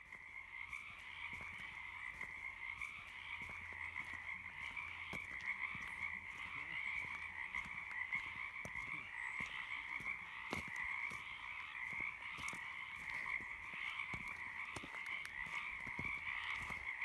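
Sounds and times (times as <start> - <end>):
frog chorus: 0.0 - 17.0.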